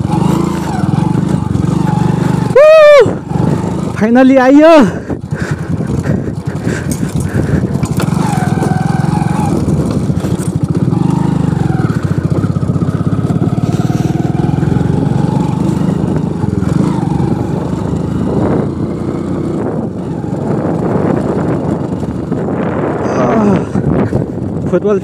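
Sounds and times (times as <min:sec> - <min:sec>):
motorcycle engine running: 0:00.0 - 0:25.0.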